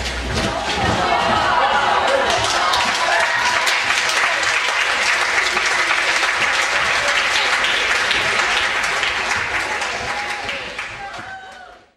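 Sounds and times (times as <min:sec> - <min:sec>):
crowd applauding: 0:00.8 - 0:11.9.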